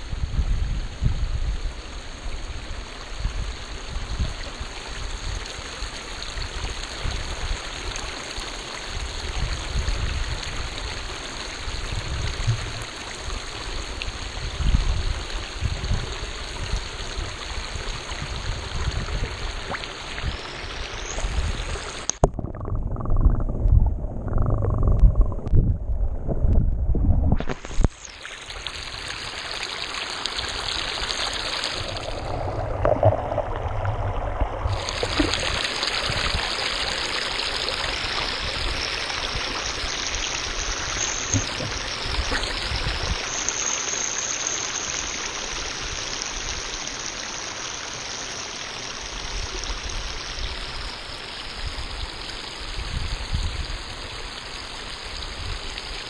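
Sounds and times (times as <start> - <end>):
water splashing over rock: 27.4 - 43.6.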